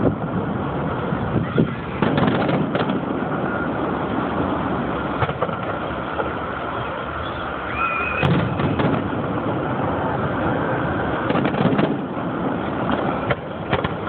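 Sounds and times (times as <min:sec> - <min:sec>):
background rumble: 0:00.0 - 0:14.0
firework whistle: 0:01.2 - 0:14.0
firework shells bursting: 0:01.6 - 0:06.4, 0:08.0 - 0:14.0.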